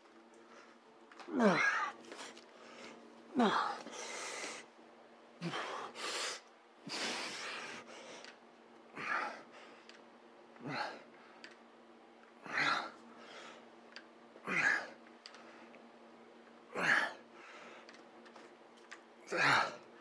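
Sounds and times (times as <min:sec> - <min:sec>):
man breathing hard: 0:00.4 - 0:04.7, 0:05.4 - 0:08.4, 0:09.0 - 0:10.0, 0:12.4 - 0:13.7, 0:16.8 - 0:18.0.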